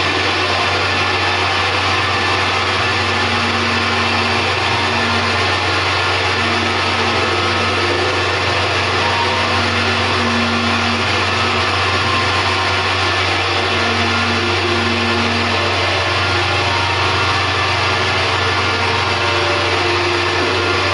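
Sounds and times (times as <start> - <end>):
constant low hum: 0.0 - 20.9
dense electronic noise: 0.0 - 20.9.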